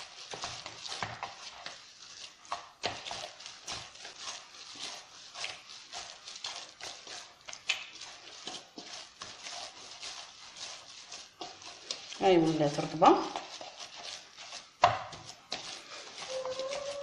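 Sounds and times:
hands kneading dough squishing: 0.0s - 17.0s.

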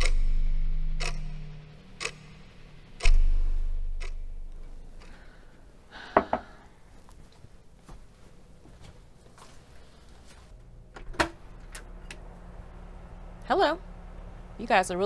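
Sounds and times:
deep bass hit: 0.0s - 5.0s
clock-like ticks: 0.0s - 5.4s.

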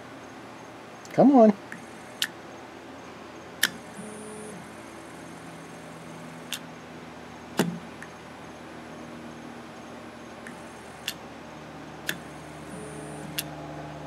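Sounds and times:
faint high whine: 0.0s - 14.0s
sharp clicks: 3.6s - 4.2s, 7.6s - 8.1s, 12.0s - 13.5s
stepper motor humming: 3.6s - 6.7s, 7.5s - 14.0s.

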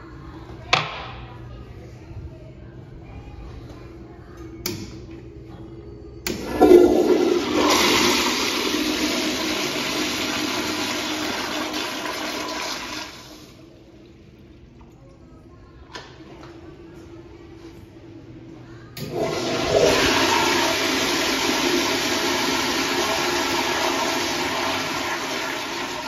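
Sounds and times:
toilet water rushing: 6.4s - 13.7s, 19.0s - 26.0s.

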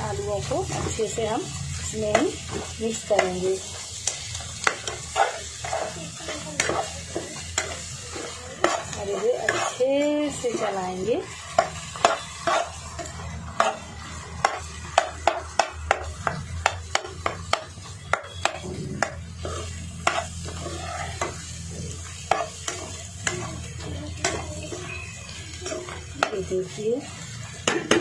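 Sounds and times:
low frying sizzle: 0.0s - 28.0s
spoon scraping and clinking in pan: 6.6s - 9.8s.

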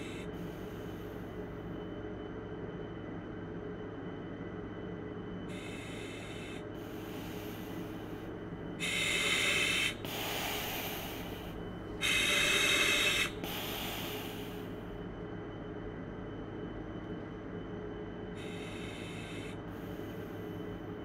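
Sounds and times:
steady low hum: 0.0s - 21.0s
heavy breathing: 5.5s - 14.8s, 18.4s - 20.8s.

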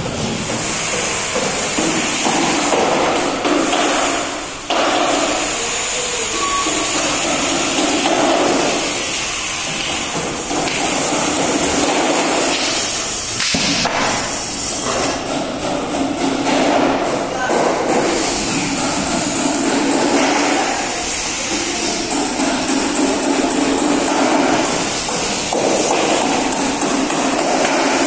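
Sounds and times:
construction work din: 0.0s - 28.0s.

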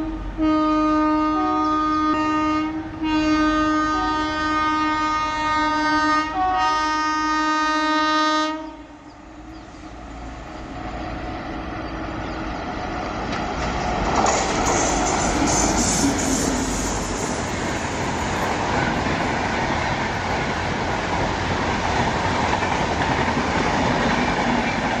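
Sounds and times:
locomotive air horn blast: 0.0s - 9.0s, 15.3s - 17.4s
train rumble and wheel clatter: 0.0s - 25.0s.

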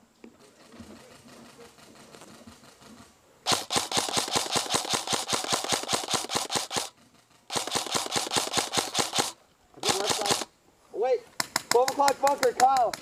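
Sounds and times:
airsoft rifle firing full auto: 3.5s - 10.5s.

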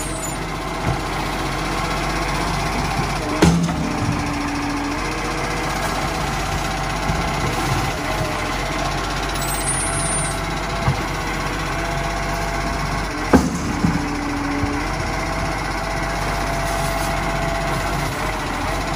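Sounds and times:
garbage truck engine running: 0.0s - 18.9s
hydraulic lifting arm: 0.0s - 18.9s.

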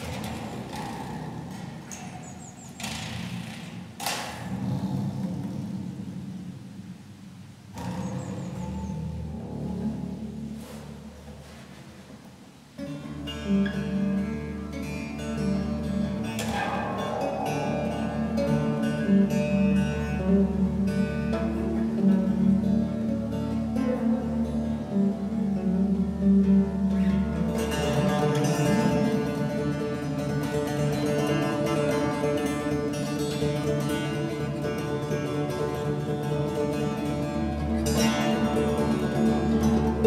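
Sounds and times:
acoustic bass guitar plucked: 7.7s - 11.8s, 12.8s - 40.0s.

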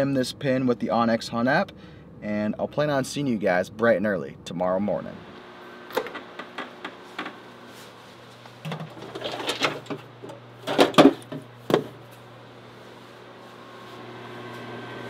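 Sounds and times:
steady low hum: 0.0s - 15.0s
refrigerator door opening: 8.6s - 12.0s.

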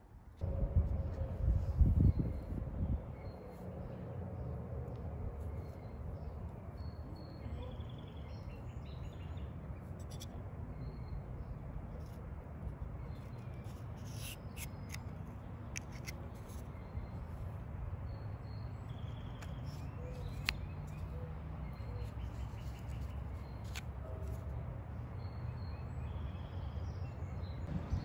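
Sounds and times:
steady low rumble: 0.4s - 6.7s.

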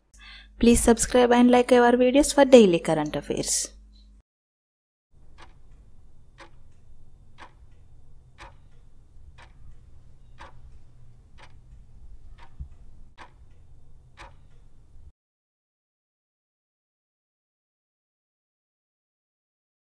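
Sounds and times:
low steady hum: 0.1s - 4.2s, 5.2s - 15.1s
clock ticking: 5.2s - 15.1s.

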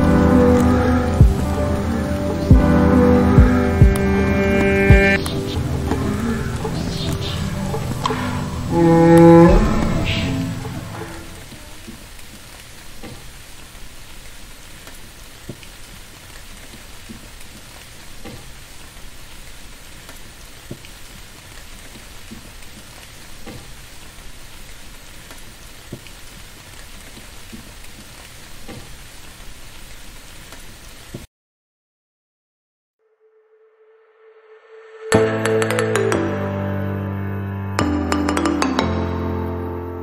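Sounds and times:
rain hiss: 0.0s - 31.3s.

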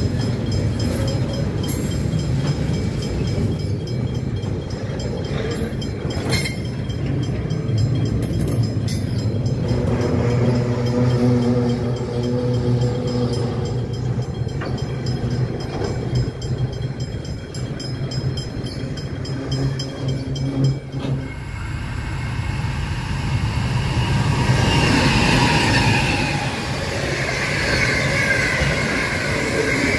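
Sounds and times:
freight train passing: 0.0s - 29.9s
train wheel squeal: 0.0s - 29.9s.

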